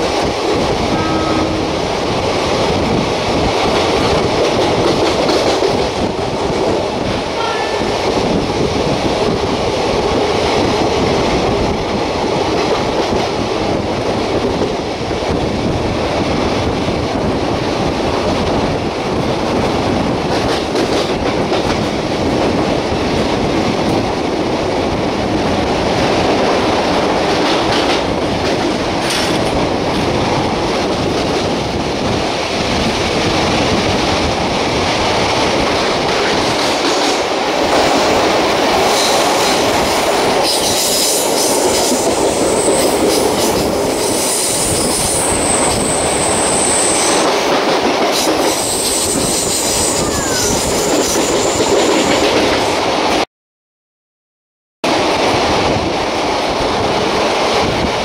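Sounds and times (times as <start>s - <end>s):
train wheels rumbling on rails: 0.0s - 53.2s, 54.8s - 58.0s
high-pitched wheel squeal: 48.6s - 52.2s.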